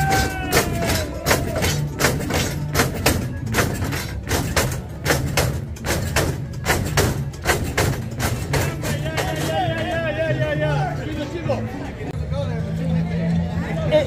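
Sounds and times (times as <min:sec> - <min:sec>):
steady percussive beat: 0:00.0 - 0:10.2.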